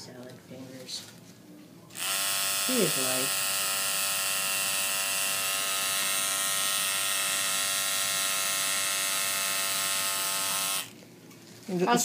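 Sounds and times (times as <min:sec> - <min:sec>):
tattoo machine buzzing: 0:01.9 - 0:10.9.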